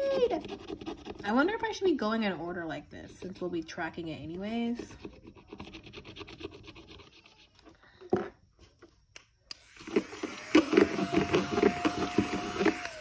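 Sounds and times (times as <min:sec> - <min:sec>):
small motor whirring and clattering: 0:09.6 - 0:13.0.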